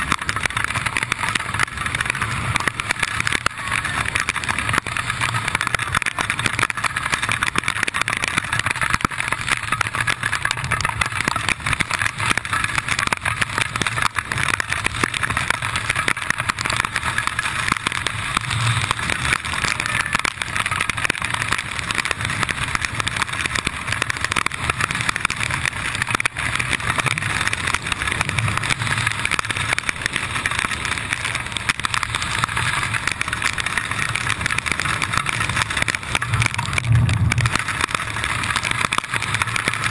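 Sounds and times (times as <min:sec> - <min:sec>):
wind rushing over microphone: 0:36.2 - 0:37.7.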